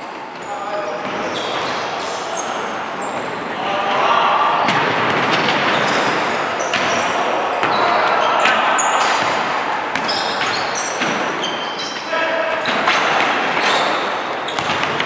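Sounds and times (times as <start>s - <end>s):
sneakers squeaking: 0.0s - 3.6s, 4.6s - 15.0s
crowd chattering: 0.0s - 15.0s
basketball bouncing: 4.7s - 11.9s, 12.6s - 15.0s.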